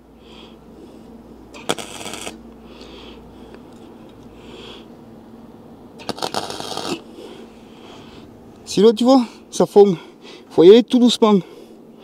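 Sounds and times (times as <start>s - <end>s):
welding arc crackling: 1.6s - 2.4s, 6.0s - 7.1s.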